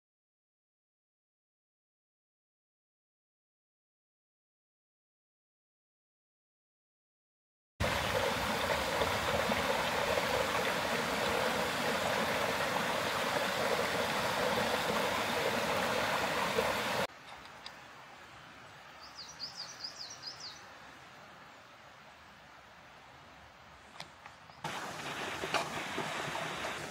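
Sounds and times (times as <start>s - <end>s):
water rushing over rocks: 7.8s - 17.1s, 24.7s - 26.9s
small bird singing: 19.0s - 20.7s.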